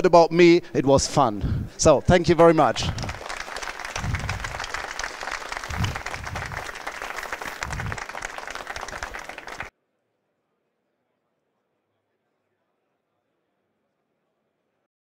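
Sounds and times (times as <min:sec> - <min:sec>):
crowd clapping: 0:02.1 - 0:09.7.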